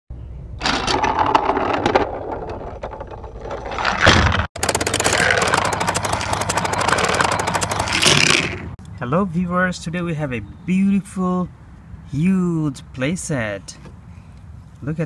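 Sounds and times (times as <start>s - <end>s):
toy trains rattling on track: 4.6s - 8.7s
fast even clicks: 4.6s - 8.8s.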